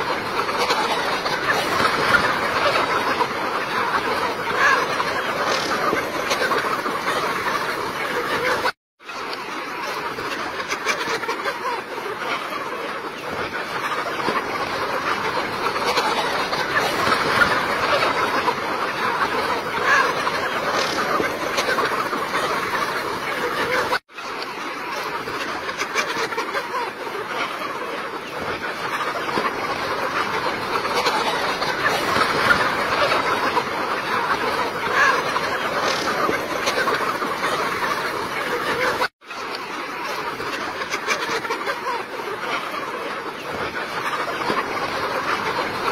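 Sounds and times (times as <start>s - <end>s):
chickens clucking: 0.0s - 45.9s.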